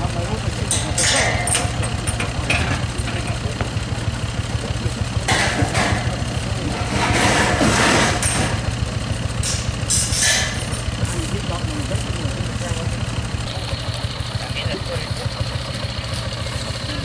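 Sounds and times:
engine idling: 0.0s - 17.0s
metal ramps scraping and rattling: 0.6s - 3.3s, 5.3s - 11.4s.

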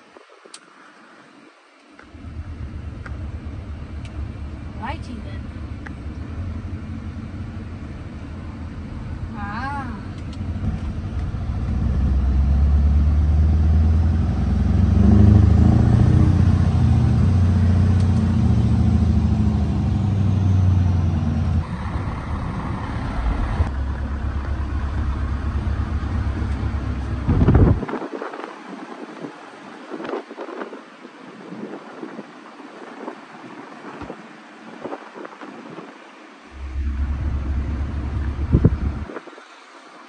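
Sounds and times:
truck engine pulling under load: 10.2s - 27.8s, 36.6s - 39.1s.

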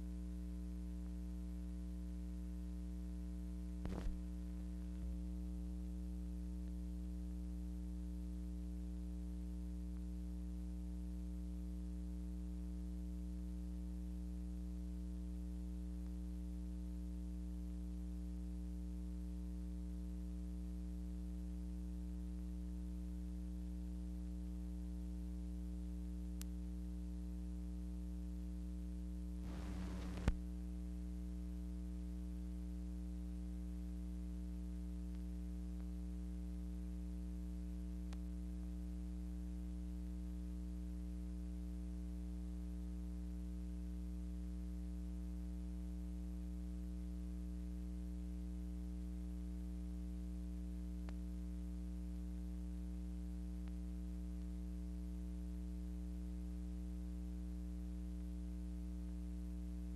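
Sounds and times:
crackle and pop: 0.0s - 45.6s, 47.1s - 58.4s
mains hum: 0.0s - 59.9s
faint click: 3.8s - 5.2s, 29.4s - 30.4s, 38.1s - 38.3s, 51.0s - 51.2s
light hiss: 29.4s - 30.4s.

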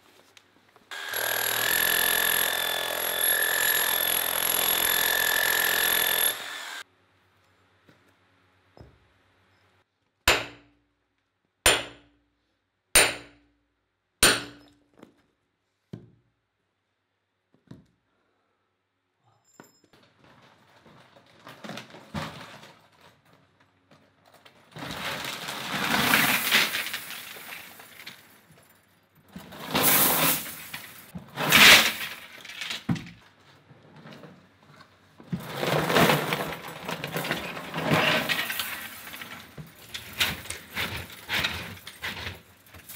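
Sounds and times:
hammer striking steel wedge: 10.3s - 10.8s, 11.7s - 12.2s, 13.0s - 13.5s, 14.2s - 14.8s.

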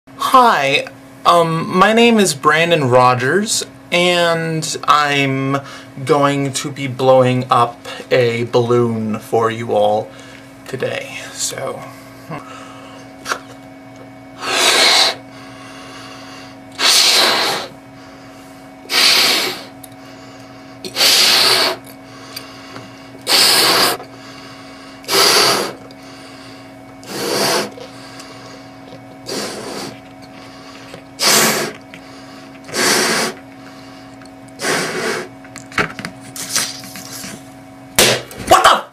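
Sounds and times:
breathy puffs into balloon: 14.4s - 19.8s, 20.6s - 21.9s, 22.6s - 30.0s, 30.6s - 33.8s, 34.6s - 35.3s.

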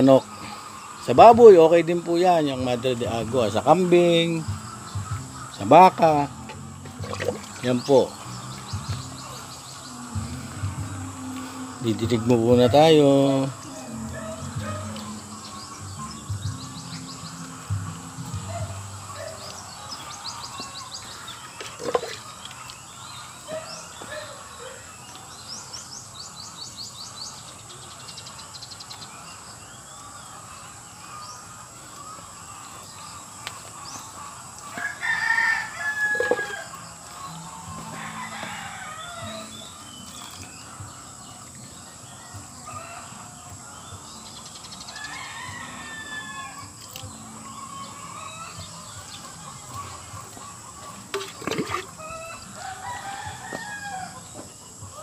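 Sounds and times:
fowl calling: 0.0s - 25.8s, 29.1s - 55.0s
small birds chirping: 0.0s - 55.0s
rooster crowing: 8.4s - 16.2s, 34.6s - 39.8s, 44.8s - 51.1s, 51.7s - 55.0s.

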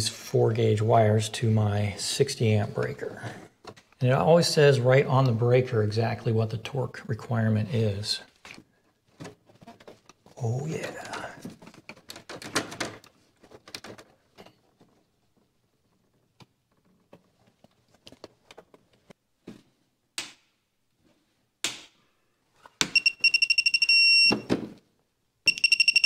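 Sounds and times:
electronic screwdriver beeping: 22.9s - 24.4s, 25.5s - 26.0s.

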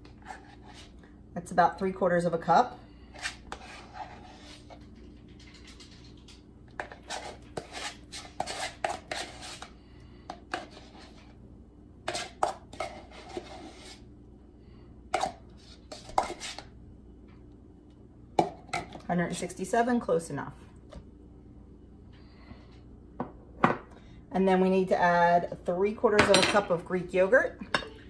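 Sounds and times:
spoon scraping container: 3.2s - 9.7s, 12.1s - 14.0s, 15.2s - 16.7s.

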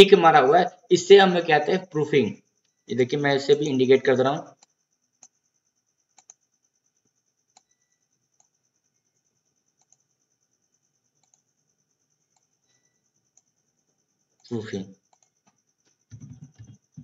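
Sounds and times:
faint high-pitched whine: 0.0s - 17.0s
computer mouse clicks: 6.1s - 6.5s, 7.5s - 8.6s, 9.8s - 10.1s, 11.2s - 11.5s, 12.3s - 12.5s, 13.3s - 13.5s, 15.1s - 16.8s.

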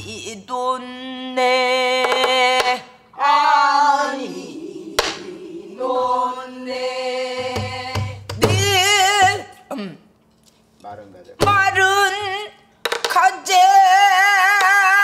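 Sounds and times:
voices singing together: 0.0s - 9.6s.

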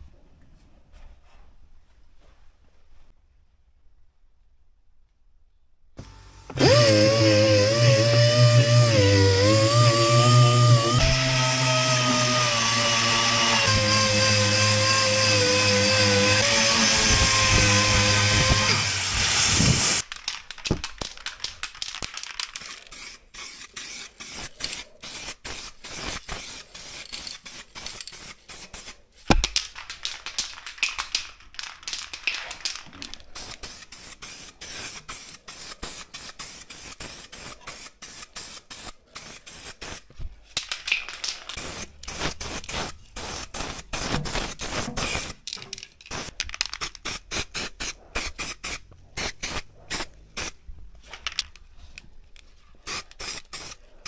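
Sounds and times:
aerosol spray can hissing: 18.3s - 20.0s, 22.6s - 29.0s, 33.4s - 40.0s, 41.6s - 45.4s, 52.8s - 53.8s.

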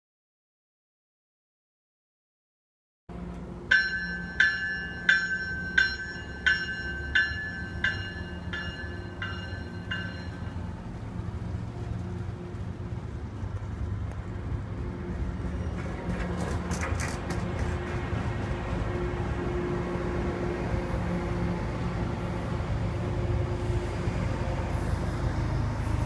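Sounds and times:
low train rumble: 3.1s - 26.0s
train warning bell ringing: 3.2s - 11.0s.

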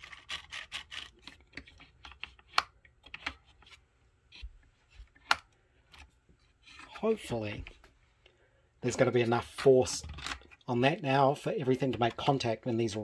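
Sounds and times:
plastic parts clicking and tapping: 0.0s - 3.8s, 9.8s - 10.7s.

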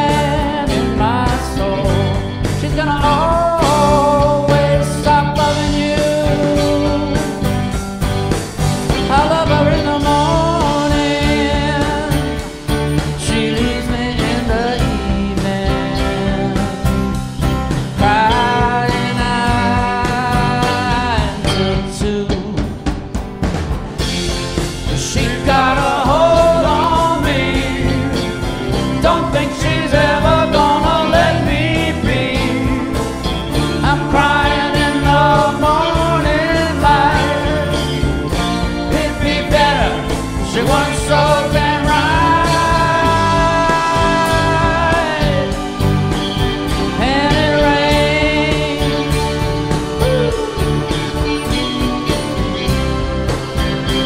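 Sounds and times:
acoustic guitar strumming: 0.0s - 54.0s
bass: 0.0s - 54.0s
drum beat: 0.0s - 54.0s
keyboards: 0.0s - 54.0s
live rock band playing: 0.0s - 54.0s
lead line of held notes: 24.0s - 54.0s.

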